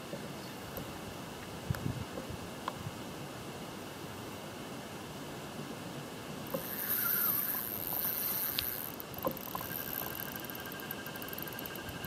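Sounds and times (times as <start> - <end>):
fishing reel drag whine: 6.5 - 12.0.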